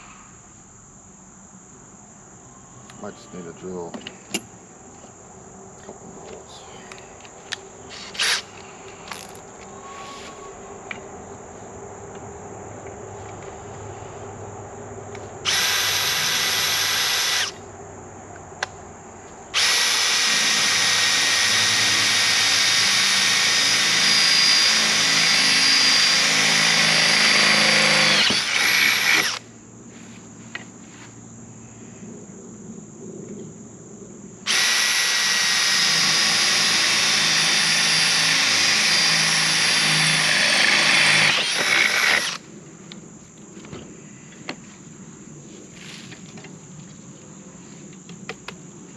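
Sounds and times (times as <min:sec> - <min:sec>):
cordless drill running: 0:08.0 - 0:08.5, 0:15.5 - 0:17.6, 0:19.6 - 0:29.4, 0:34.5 - 0:42.4.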